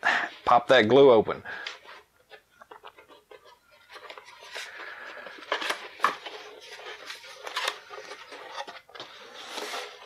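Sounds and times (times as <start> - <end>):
cardboard rustling and scraping: 1.8 - 10.0.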